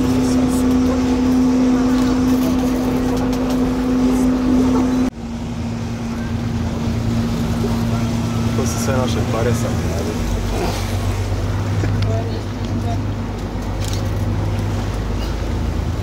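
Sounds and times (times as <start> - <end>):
boat engine droning: 0.0 - 16.0.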